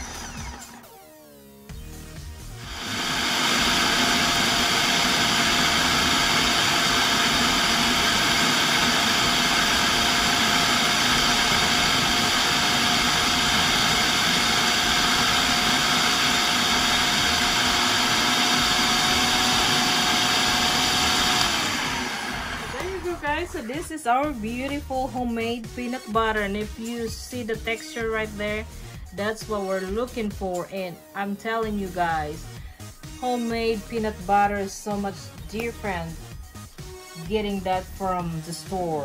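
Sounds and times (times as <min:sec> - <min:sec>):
food processor motor grinding: 0:00.0 - 0:23.8.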